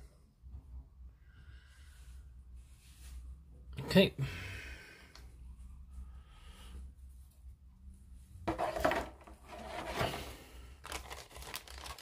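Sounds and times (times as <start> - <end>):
plastic bag rustling and crinkling: 8.5 - 12.0.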